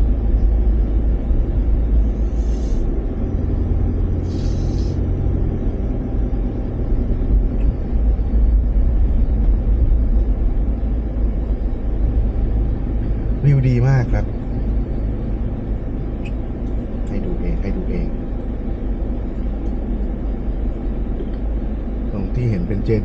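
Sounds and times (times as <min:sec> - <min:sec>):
vehicle engine and road rumble: 0:00.0 - 0:23.0
short hisses: 0:02.1 - 0:02.9, 0:04.2 - 0:05.0.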